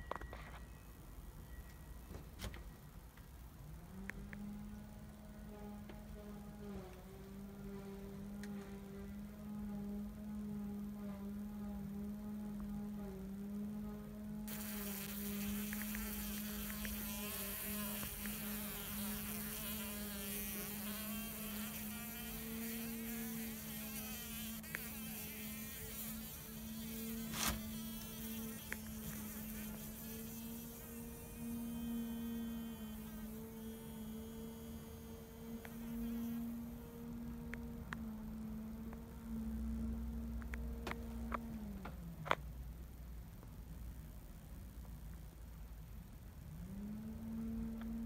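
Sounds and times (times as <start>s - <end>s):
fly buzzing wings: 14.5s - 37.1s.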